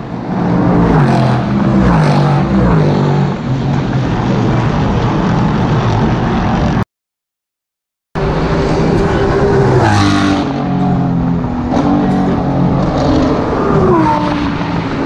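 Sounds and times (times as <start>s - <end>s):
race car engine passing: 8.2s - 15.0s.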